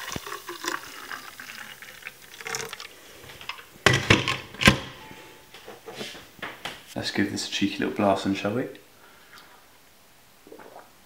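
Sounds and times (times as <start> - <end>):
frothy drink being poured: 0.0 - 3.0.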